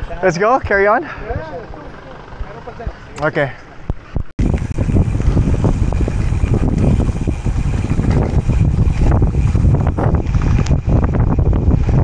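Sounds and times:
tyres rattling on rough road: 0.0s - 12.0s
wind buffeting microphone: 3.9s - 12.0s.

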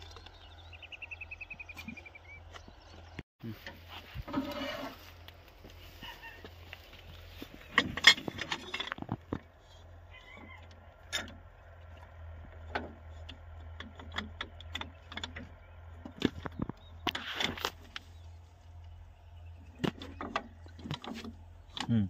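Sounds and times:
high metal squeak: 4.2s - 5.1s
metal clinks knocks and scrapes: 7.5s - 9.5s.

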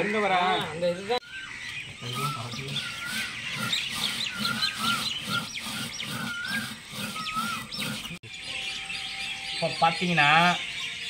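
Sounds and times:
wavering animal call: 0.0s - 9.8s
birds chirping: 0.0s - 11.0s
low rhythmic pulsing: 2.0s - 8.3s.

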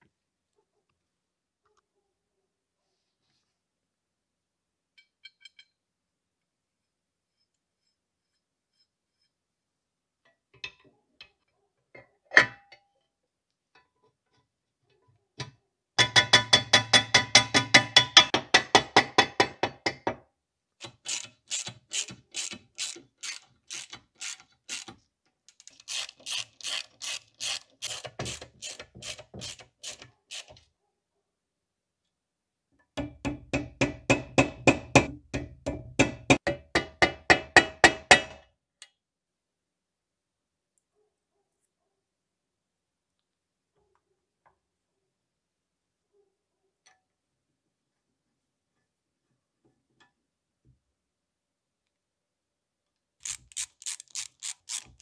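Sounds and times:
ratchet wrench clicking: 20.8s - 24.9s, 25.5s - 28.0s, 53.2s - 55.0s.

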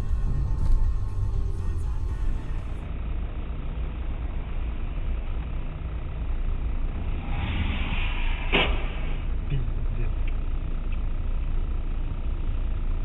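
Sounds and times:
car engine and road noise: 0.0s - 13.0s
hiss: 7.2s - 9.3s
sharp knock: 8.5s - 9.2s.

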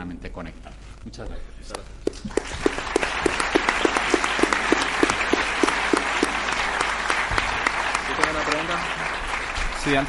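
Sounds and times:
audience applauding: 2.1s - 10.0s
close hand claps: 2.1s - 10.0s.

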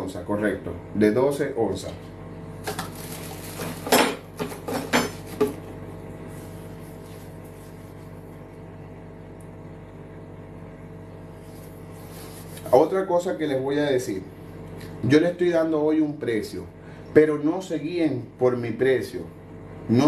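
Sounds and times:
background hum: 0.0s - 20.0s
kitchenware clinking: 3.8s - 5.6s.

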